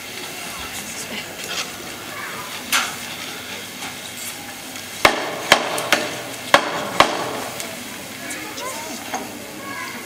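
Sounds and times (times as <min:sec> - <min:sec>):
hammer striking nails: 0:05.0 - 0:07.4.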